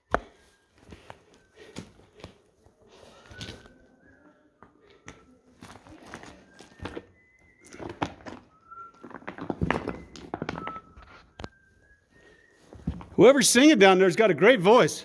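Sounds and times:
footsteps on rocky floor: 5.6s - 11.4s, 12.6s - 13.2s.

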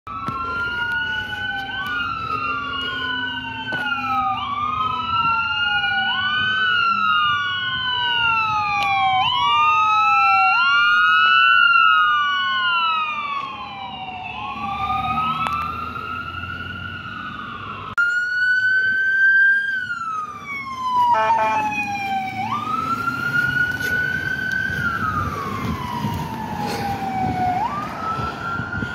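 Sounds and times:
fire engine siren wailing: 0.1s - 28.9s
siren sweeping up and down: 0.1s - 28.9s.

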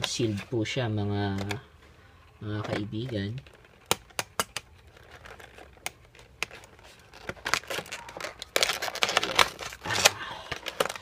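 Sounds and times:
plastic packaging crinkling: 2.5s - 11.0s.

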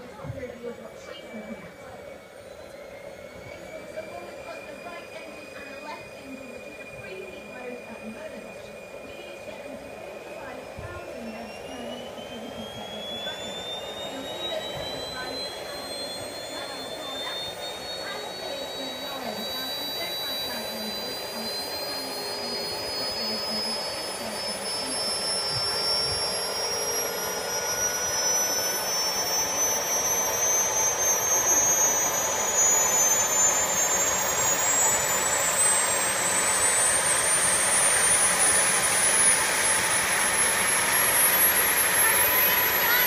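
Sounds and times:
turbojet engine spooling up: 0.0s - 43.0s.

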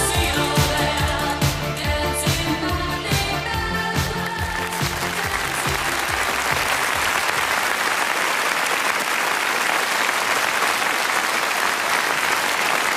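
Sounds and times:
music: 0.0s - 7.6s
audience applauding: 4.3s - 12.9s.

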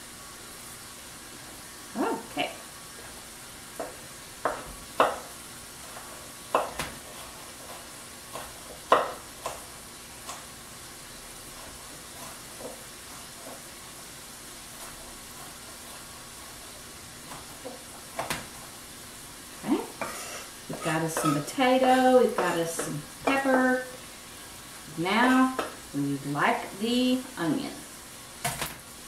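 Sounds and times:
sausage sizzling in a skillet: 0.0s - 29.0s
knife chopping on wooden board: 3.8s - 5.3s, 5.9s - 9.6s.

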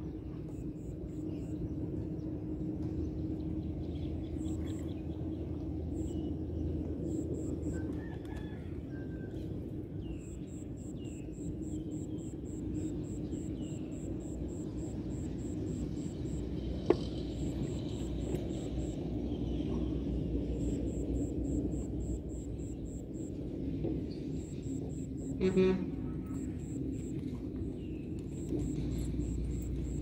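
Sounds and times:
steady low rumble: 8.7s - 30.0s.

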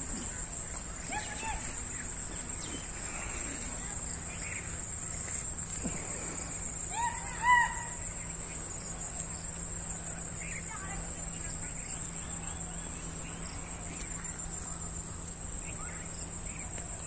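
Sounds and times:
bird calling: 0.0s - 17.0s.

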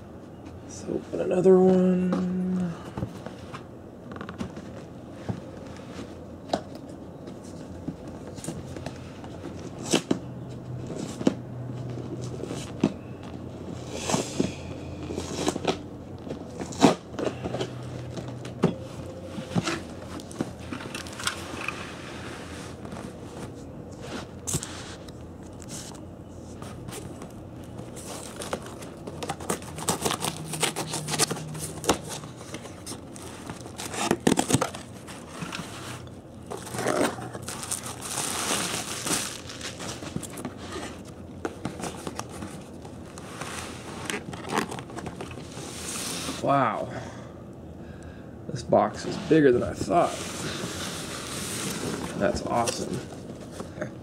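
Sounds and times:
packing paper crinkling and tearing: 27.9s - 41.1s, 41.7s - 46.4s.

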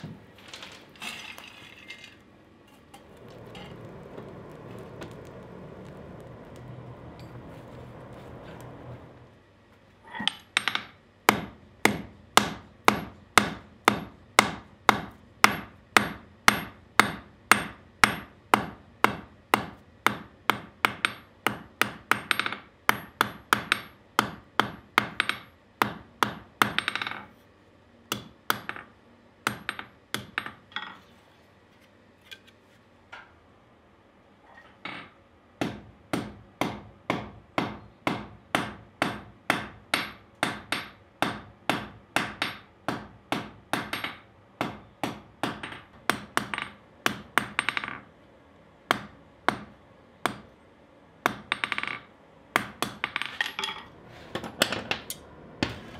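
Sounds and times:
hammer striking steel on anvil: 10.3s - 27.2s, 28.1s - 28.9s, 35.6s - 48.0s.

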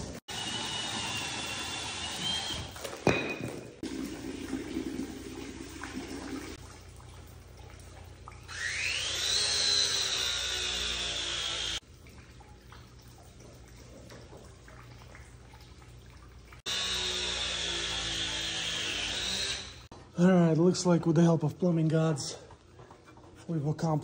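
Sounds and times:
tool motor whine: 0.3s - 2.8s, 8.5s - 11.8s, 16.7s - 19.9s.

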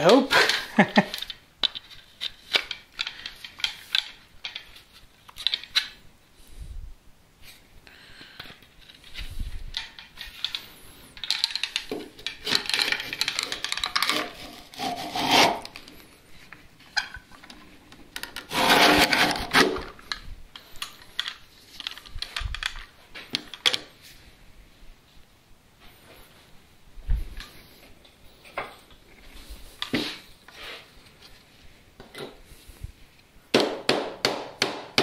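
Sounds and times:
wood scraping against metal bar: 12.2s - 15.8s, 18.4s - 19.9s.

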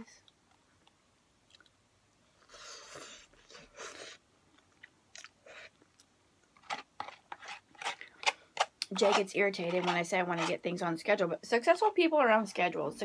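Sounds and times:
person chewing crunchy food: 2.4s - 10.5s.

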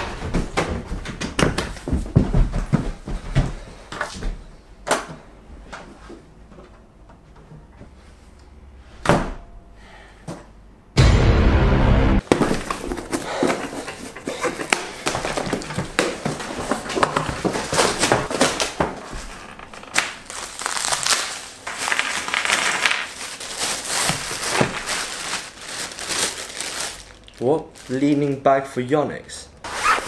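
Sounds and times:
cardboard tearing and scraping: 12.2s - 27.1s
plastic wrap crinkling: 12.2s - 28.5s.

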